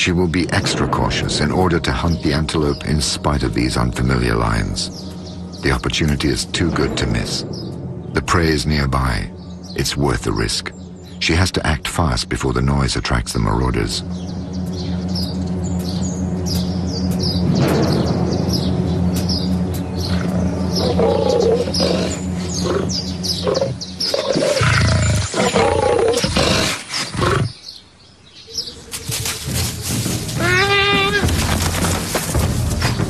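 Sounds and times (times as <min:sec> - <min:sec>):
birds chirping: 0:00.0 - 0:33.0
big cat roaring and growling: 0:20.1 - 0:27.6.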